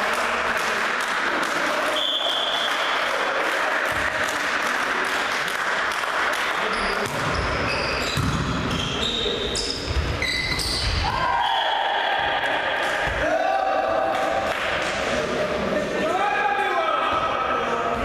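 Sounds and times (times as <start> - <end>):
volleyball hits: 1.0 - 9.0
sneaker squeaks: 6.6 - 11.1.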